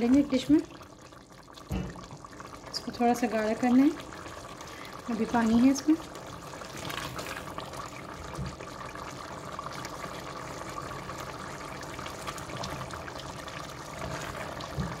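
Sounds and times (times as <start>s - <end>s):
stew bubbling and popping: 0.0s - 15.0s.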